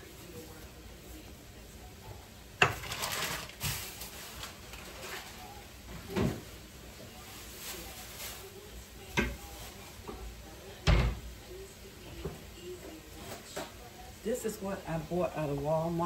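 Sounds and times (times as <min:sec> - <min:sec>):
knocks and thumps in a kitchen: 0:02.0 - 0:05.2, 0:05.8 - 0:06.6, 0:09.0 - 0:11.4, 0:12.0 - 0:12.6.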